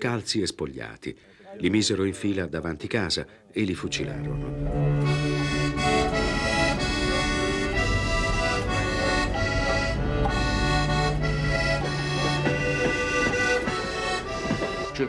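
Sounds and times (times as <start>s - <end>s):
accordion music: 3.8s - 15.0s.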